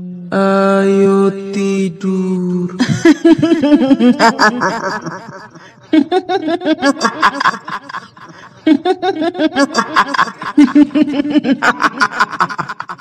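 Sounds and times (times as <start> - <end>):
woman cackling laugh: 2.8 - 13.0.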